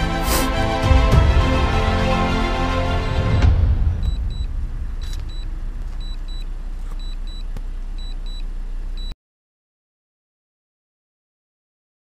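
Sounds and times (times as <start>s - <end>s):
low steady rumble: 1.1s - 9.2s
short high beeps: 4.0s - 8.4s.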